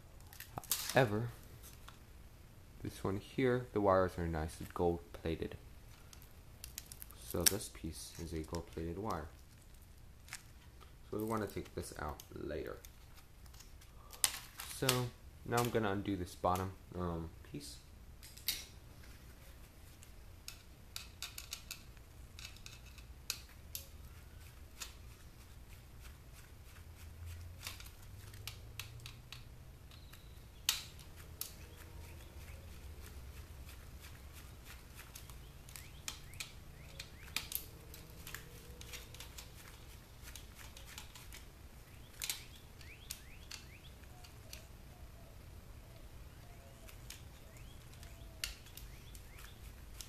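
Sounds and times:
hands handling parts: 4.1 - 16.7, 18.2 - 45.3, 45.9 - 50.0.

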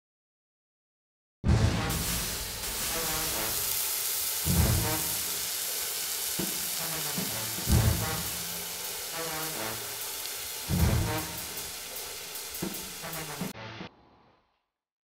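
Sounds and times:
theme music: 1.4 - 13.9
heavy low hit: 1.5 - 3.7, 4.5 - 5.1, 7.6 - 8.6, 10.7 - 11.6
food sizzling in a wok: 1.7 - 13.5.

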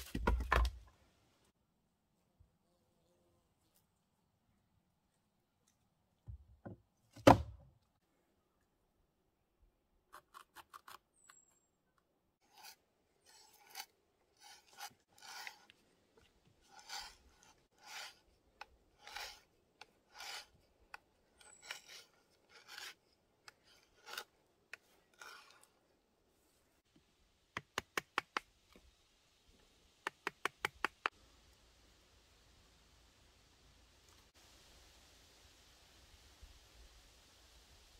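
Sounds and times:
knife carving wood: 10.1 - 11.5, 12.4 - 25.8.

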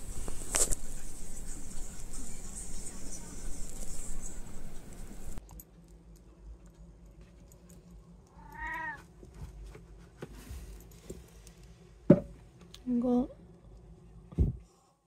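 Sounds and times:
cat meowing: 8.3 - 9.1.

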